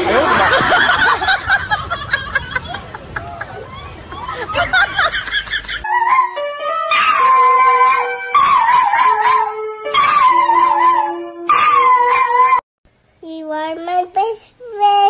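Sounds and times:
dog howling: 0:05.9 - 0:12.6.

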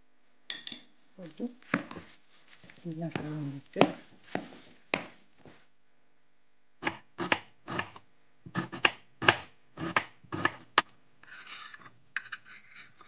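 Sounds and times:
knife chopping on wooden board: 0:06.8 - 0:10.8
knife scraping board: 0:08.6 - 0:13.0.

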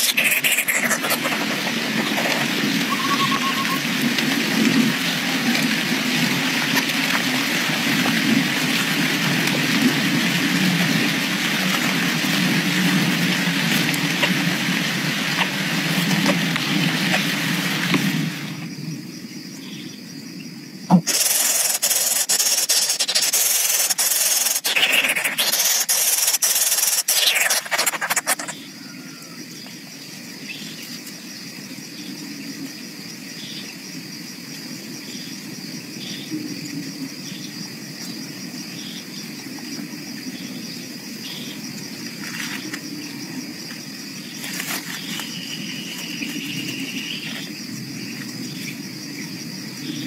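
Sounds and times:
rustling and scraping dry grass: 0:00.0 - 0:03.7, 0:21.1 - 0:28.5, 0:44.2 - 0:47.5.

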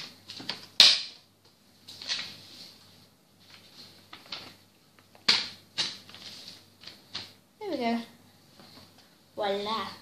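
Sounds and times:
paper rustling: 0:01.8 - 0:07.4.

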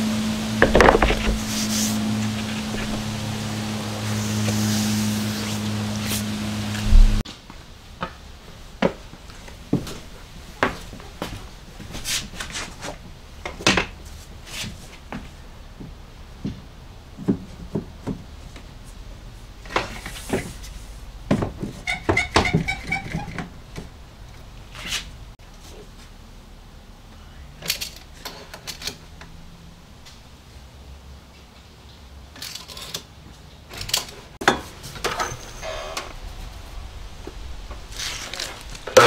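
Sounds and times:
tools and wood knocking: 0:00.6 - 0:01.4, 0:21.3 - 0:23.9, 0:33.8 - 0:36.1
footsteps: 0:00.6 - 0:03.5.

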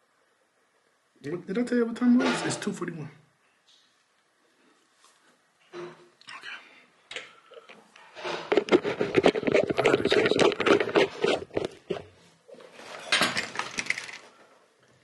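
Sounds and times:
clothing rustling against microphone: 0:08.1 - 0:13.1.

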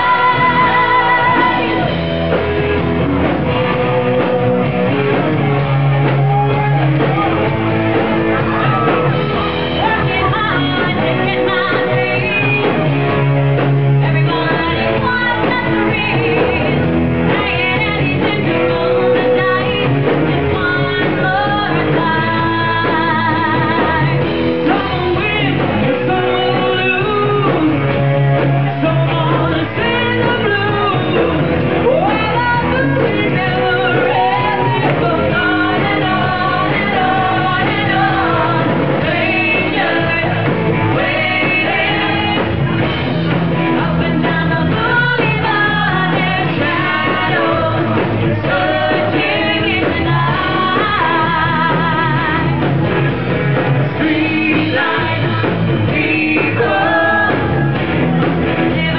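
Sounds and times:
man singing lead: 0:00.0 - 0:02.1, 0:08.3 - 0:52.7, 0:53.8 - 0:58.9
bass: 0:00.0 - 0:58.9
drums: 0:00.0 - 0:58.9
electric guitar: 0:00.0 - 0:58.9.

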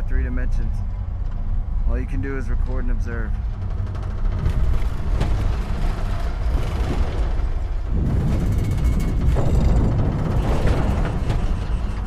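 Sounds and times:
deep rumble and buffeting: 0:00.0 - 0:12.0.

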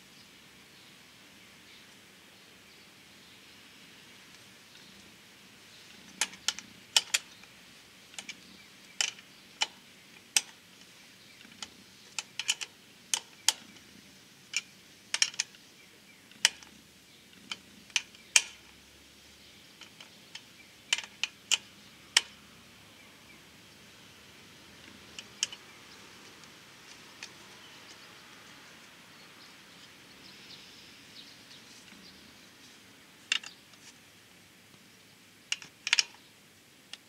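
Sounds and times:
plastic parts clicking and tapping: 0:06.1 - 0:07.3, 0:08.1 - 0:10.6, 0:11.4 - 0:13.8, 0:14.5 - 0:15.6, 0:16.3 - 0:16.7, 0:17.4 - 0:18.6, 0:19.8 - 0:22.4, 0:24.8 - 0:25.6, 0:33.3 - 0:33.8, 0:35.5 - 0:36.2.

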